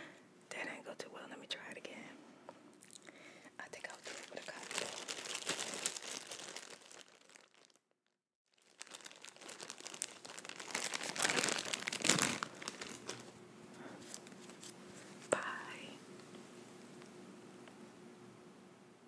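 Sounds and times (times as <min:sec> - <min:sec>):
material crinkling and rustling: 0:03.8 - 0:15.4.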